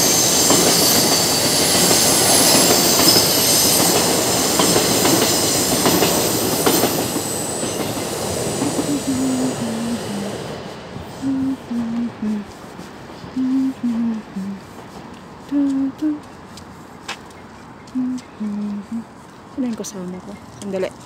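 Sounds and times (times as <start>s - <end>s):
high wheel squeal: 0.0s - 10.6s
rail clacks: 0.0s - 10.6s
train cars rumbling: 0.0s - 16.6s.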